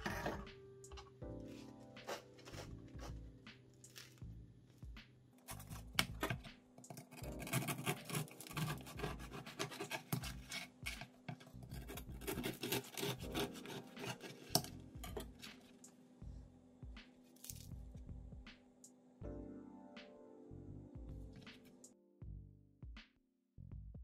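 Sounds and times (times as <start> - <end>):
bread knife sawing through crust: 2.0 - 3.2, 7.1 - 11.0, 11.6 - 15.2.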